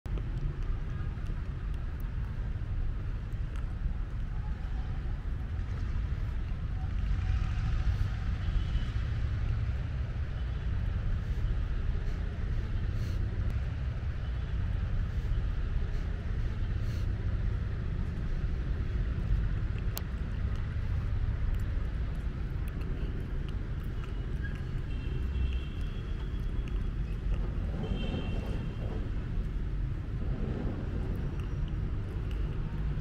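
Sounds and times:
low outdoor rumble: 0:00.0 - 0:33.0
faint clicks: 0:00.1 - 0:02.4, 0:19.2 - 0:33.0.

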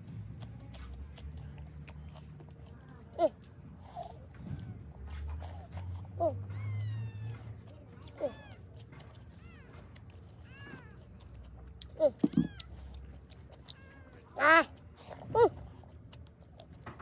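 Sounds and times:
cat meowing: 0:06.4 - 0:07.5, 0:09.4 - 0:11.2, 0:12.1 - 0:13.0.

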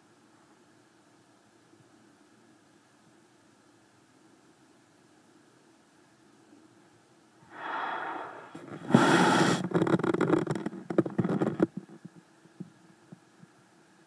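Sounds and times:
scrape: 0:07.6 - 0:09.7
small knocks and clicks: 0:09.6 - 0:13.6.

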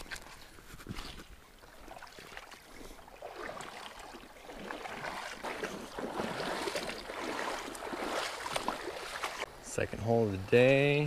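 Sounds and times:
small splashes and clicks: 0:00.0 - 0:09.5
river water running over rocks: 0:01.6 - 0:09.5.

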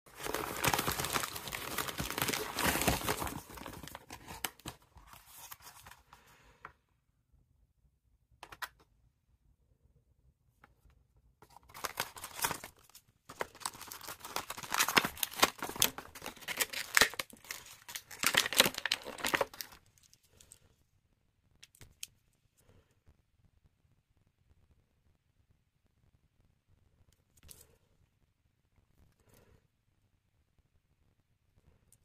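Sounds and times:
plastic packaging crinkling: 0:00.1 - 0:06.0, 0:11.4 - 0:20.2.

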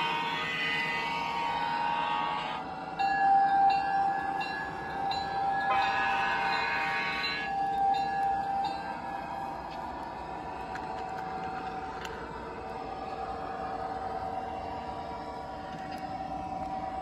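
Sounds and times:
diesel air horn blast: 0:00.0 - 0:02.7, 0:05.6 - 0:07.6.

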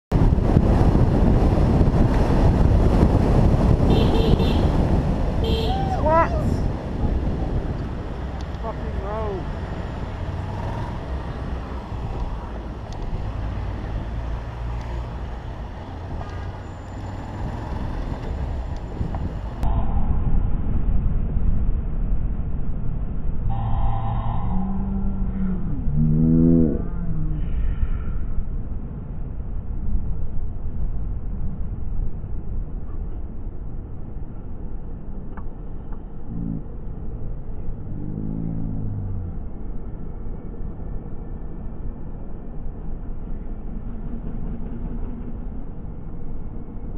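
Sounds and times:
motorcycle engine rumble: 0:00.1 - 0:19.7
wind on microphone: 0:00.1 - 0:37.8
surrounding traffic: 0:00.1 - 0:46.9.

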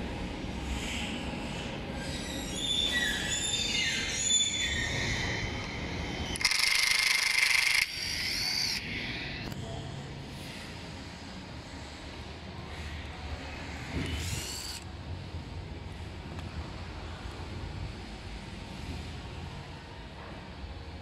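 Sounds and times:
impact driver motor whining: 0:06.4 - 0:08.8.

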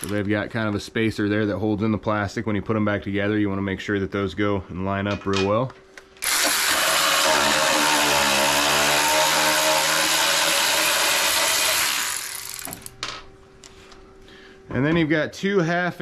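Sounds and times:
power tool motor whine: 0:06.2 - 0:12.9.

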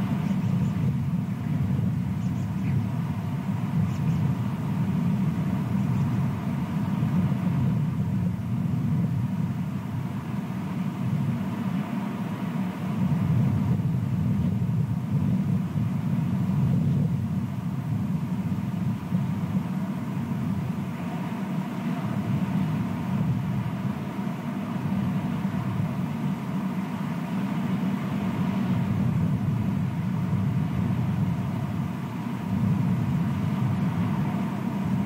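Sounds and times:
low outdoor rumble: 0:00.0 - 0:35.0.

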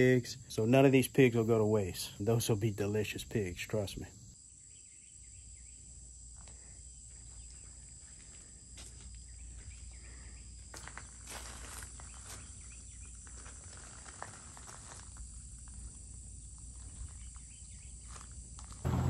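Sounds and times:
insects droning: 0:00.0 - 0:19.0.

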